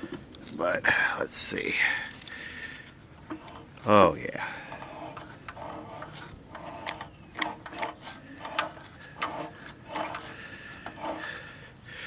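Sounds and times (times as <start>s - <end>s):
clicks and grinding inside engine: 4.6s - 11.5s
small engine turning over: 4.7s - 11.5s.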